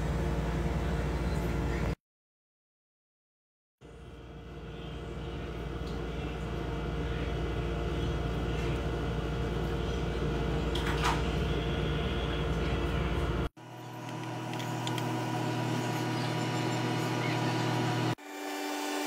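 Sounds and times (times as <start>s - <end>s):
steady low hum: 3.8s - 18.2s.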